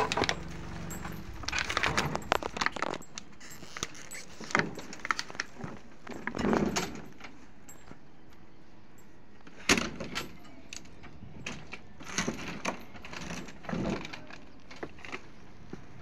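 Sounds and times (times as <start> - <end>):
short metallic rattles: 0.0 - 7.3.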